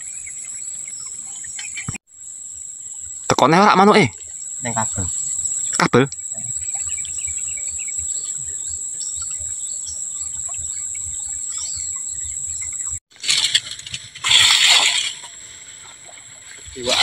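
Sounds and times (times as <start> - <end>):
high-pitched insect drone: 2.1 - 13.0.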